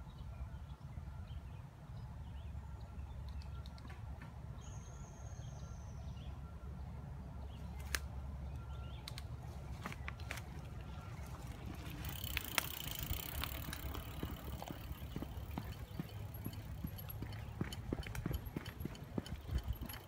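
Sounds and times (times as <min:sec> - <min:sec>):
mountain bike clicks: 0:11.4 - 0:20.0
steady low rumble: 0:13.0 - 0:20.0.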